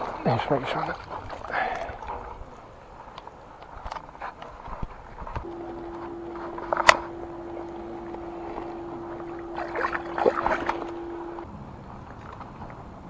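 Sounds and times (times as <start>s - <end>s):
fish splashing in water: 0.0s - 2.7s, 5.4s - 11.5s
steady faint tone: 0.0s - 12.9s.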